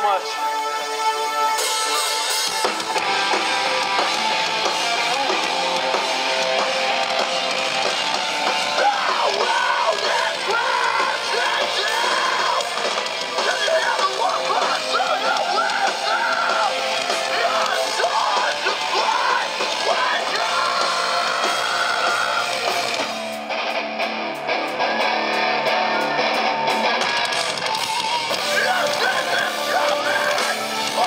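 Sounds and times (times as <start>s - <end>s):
vocals: 0.0s - 1.1s, 8.1s - 23.3s, 25.8s - 31.0s
metalcore band playing: 0.0s - 31.0s.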